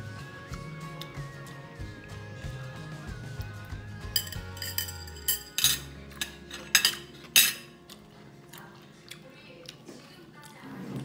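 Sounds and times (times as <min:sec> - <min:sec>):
background music: 0:00.0 - 0:09.2
crockery clinking on table: 0:04.2 - 0:07.7.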